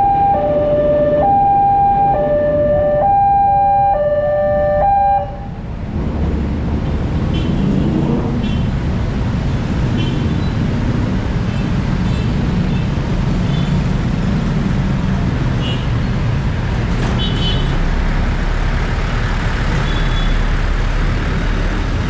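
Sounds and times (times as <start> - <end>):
two-tone crossing siren: 0.0 - 5.6
bus and car engines pulling away: 5.3 - 22.0.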